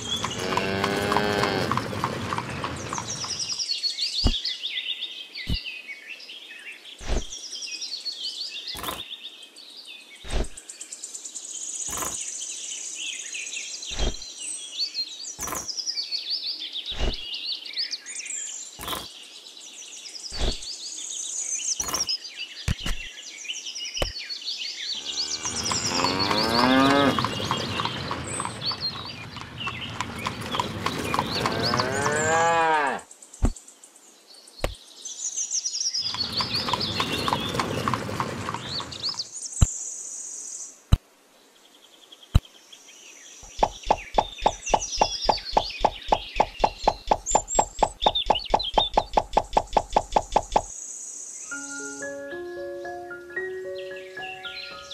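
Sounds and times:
birds chirping: 0.0s - 40.1s, 41.5s - 54.9s
cattle mooing: 0.1s - 2.2s, 25.0s - 27.7s, 31.3s - 33.0s
rapid even knocking: 43.5s - 50.7s.

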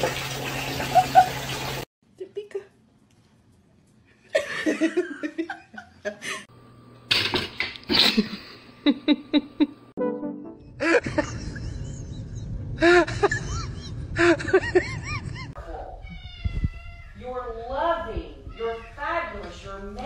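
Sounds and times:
person laughing: 0.9s - 1.4s, 4.3s - 6.5s, 7.9s - 9.8s, 10.7s - 15.6s
music: 10.0s - 10.8s.

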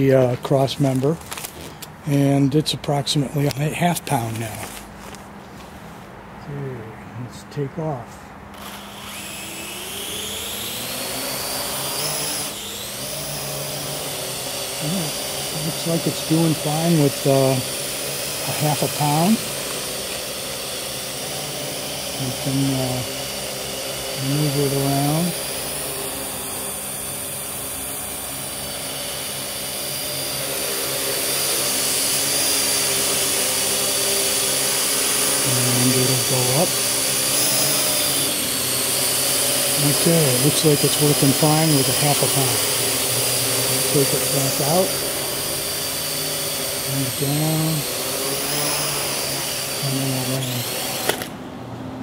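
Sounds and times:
drone motors whining: 8.5s - 51.5s.

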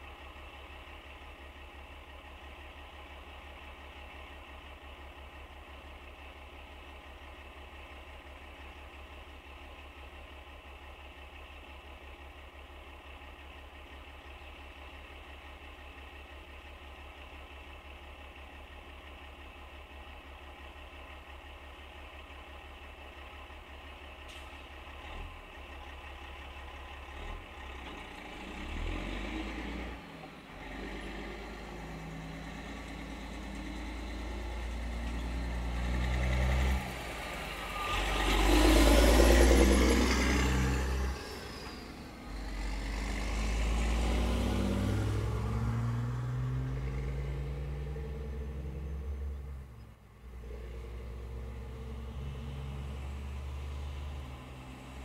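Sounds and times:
low traffic rumble: 0.0s - 55.0s
vehicles pulling away: 22.3s - 55.0s
vehicle sweeping past: 30.6s - 49.8s, 50.4s - 55.0s.

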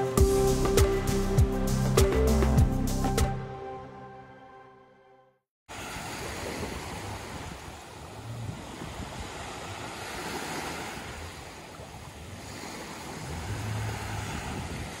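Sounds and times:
small waves lapping on beach: 5.7s - 15.0s
wind buffeting microphone: 5.9s - 15.0s.

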